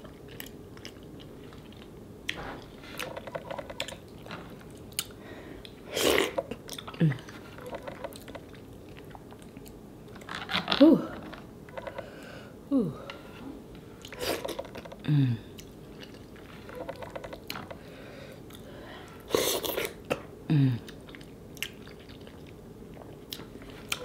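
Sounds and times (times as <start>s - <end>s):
wet chewing and lip-smacking: 0.0s - 9.8s, 15.5s - 17.6s, 20.9s - 24.0s
person humming: 10.8s - 11.2s, 12.7s - 13.2s, 15.0s - 15.5s, 20.5s - 20.9s.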